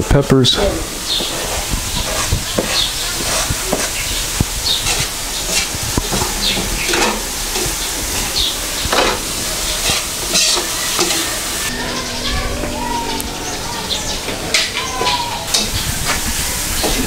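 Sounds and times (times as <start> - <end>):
food sizzling: 0.0 - 17.0
metal ladle scraping wok: 0.6 - 12.1.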